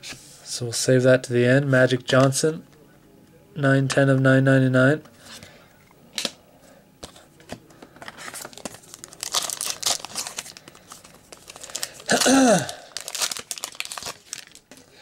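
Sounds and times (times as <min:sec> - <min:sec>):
foil wrapper crinkling and tearing: 0:08.2 - 0:14.8.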